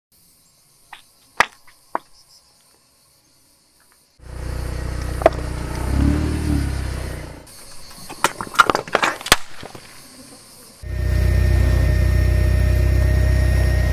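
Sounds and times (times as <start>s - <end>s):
car engine and tyre rumble: 4.2s - 7.6s, 10.8s - 13.9s
sharp crack: 8.2s - 9.9s.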